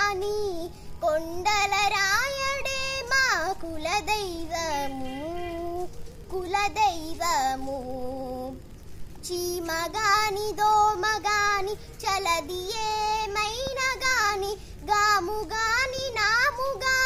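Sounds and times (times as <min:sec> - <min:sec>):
girl singing: 0:00.0 - 0:17.0.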